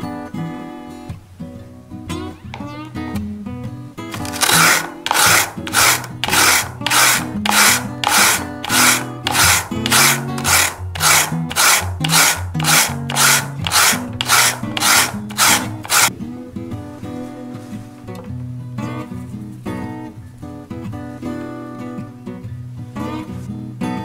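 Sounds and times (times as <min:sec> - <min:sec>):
soft guitar music: 0:00.0 - 0:04.2, 0:16.1 - 0:24.0
potato rasping on a grater: 0:04.1 - 0:16.1.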